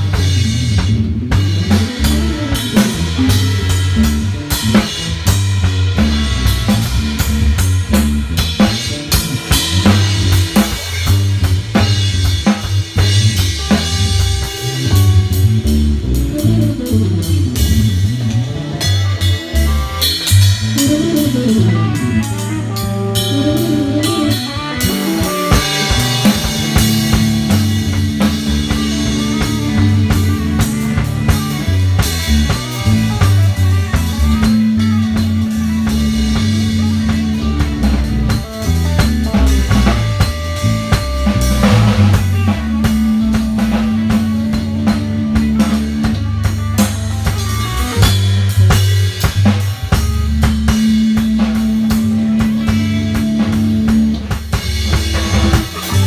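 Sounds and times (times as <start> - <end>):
dub music: 0.0 - 56.0.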